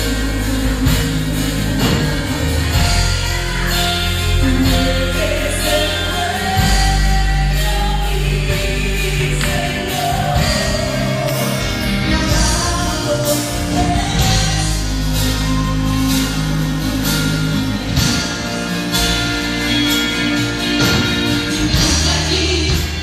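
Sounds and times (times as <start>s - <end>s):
woman singing into a microphone: 0.0s - 16.9s
worship band playing: 0.0s - 23.0s.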